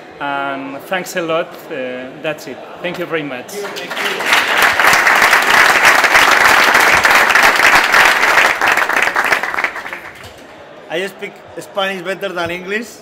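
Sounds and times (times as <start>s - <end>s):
crowd applauding: 3.5s - 10.5s.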